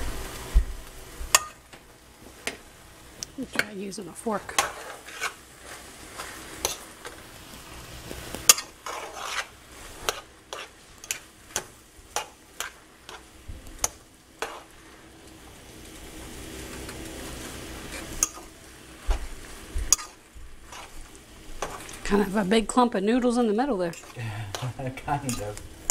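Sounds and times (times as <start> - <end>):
noodles sizzling: 0.0 - 25.9
metal tongs clinking on frying pan: 1.3 - 1.6, 8.5 - 8.7, 18.2 - 18.5, 19.9 - 20.2, 25.2 - 25.9.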